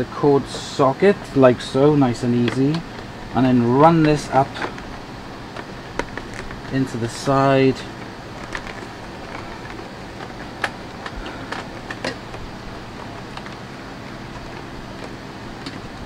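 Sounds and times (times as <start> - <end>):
background hiss: 0.0 - 8.3.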